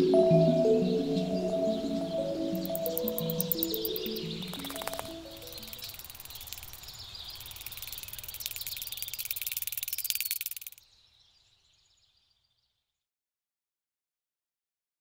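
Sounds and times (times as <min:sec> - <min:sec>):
high insect chirping: 0:02.2 - 0:10.9.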